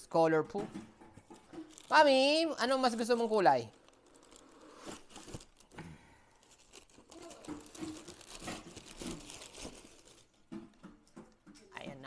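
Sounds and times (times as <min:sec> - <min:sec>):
tissue paper crinkling: 0:01.3 - 0:10.4.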